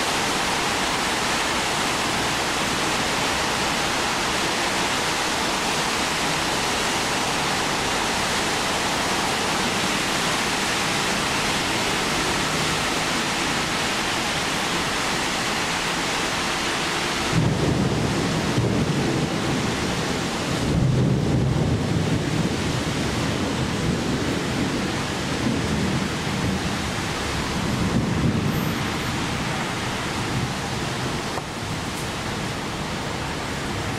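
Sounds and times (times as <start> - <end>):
rain: 0.0 - 33.9
wind gusts on microphone: 17.2 - 33.9.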